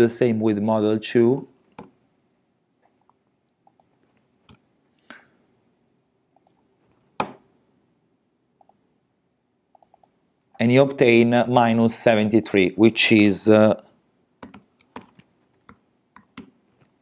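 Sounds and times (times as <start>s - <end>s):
mouse clicks: 6.4s - 7.4s, 9.7s - 10.2s
keyboard keystrokes: 14.4s - 16.9s.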